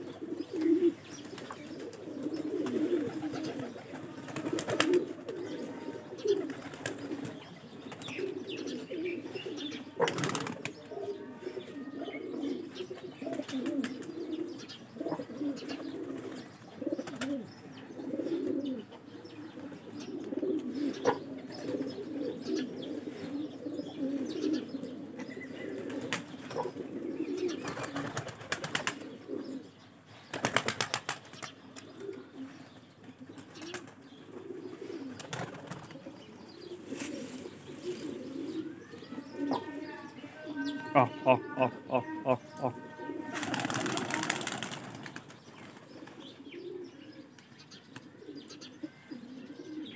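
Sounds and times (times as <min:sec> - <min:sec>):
pigeons cooing: 0:00.0 - 0:49.9
wings flapping: 0:02.6 - 0:05.4, 0:10.0 - 0:10.8, 0:27.6 - 0:29.1, 0:30.3 - 0:31.5, 0:35.2 - 0:36.0, 0:43.3 - 0:46.2.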